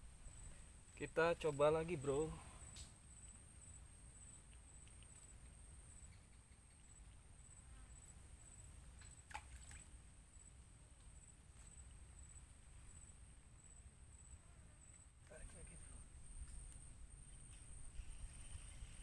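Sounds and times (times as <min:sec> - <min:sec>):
pulsing insect trill: 0:00.2 - 0:10.6.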